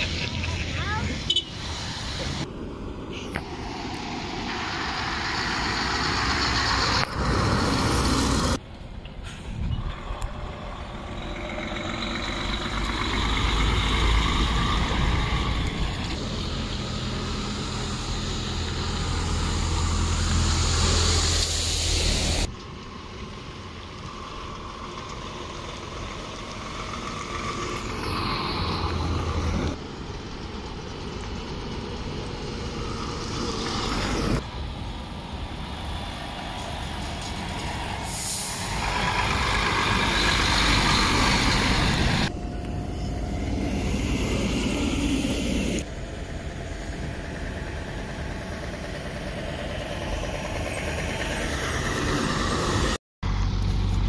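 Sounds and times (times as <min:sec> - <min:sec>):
heavy diesel lorries passing: 0:00.0 - 0:54.0
air brakes hissing: 0:37.9 - 0:39.0.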